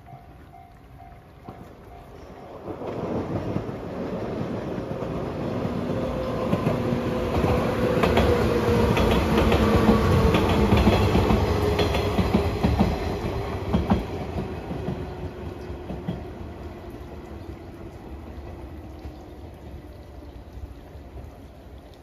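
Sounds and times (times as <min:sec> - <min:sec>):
train wheels clattering: 0:02.6 - 0:16.4.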